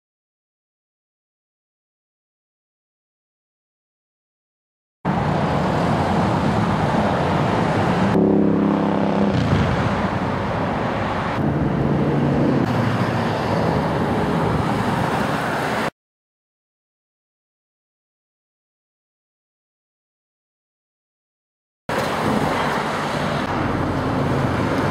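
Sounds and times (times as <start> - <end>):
road and tyre noise: 5.0 - 16.0, 21.9 - 24.9
engine hum: 5.1 - 15.9, 21.9 - 24.9
louder engine passing: 5.1 - 15.9.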